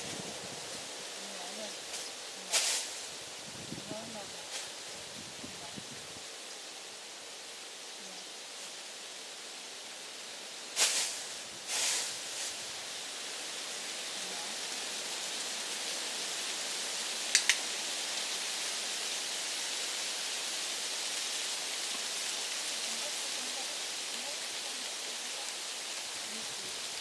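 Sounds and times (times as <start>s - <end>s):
steady hiss: 0.0s - 27.0s
training clicker click: 17.4s - 17.6s.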